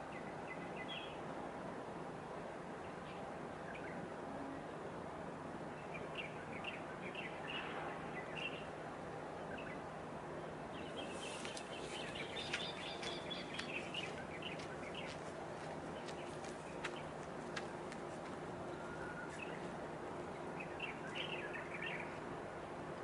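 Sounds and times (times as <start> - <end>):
small birds chirping: 10.7 - 22.3.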